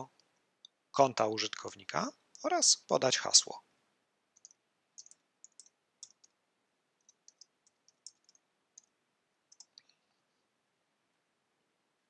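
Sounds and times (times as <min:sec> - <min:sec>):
keyboard keystrokes: 0:04.4 - 0:06.3.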